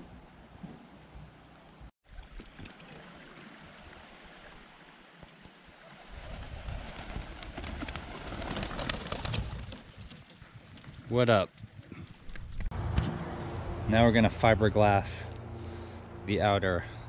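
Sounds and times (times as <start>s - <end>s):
pigeon wings flapping: 5.8s - 10.3s.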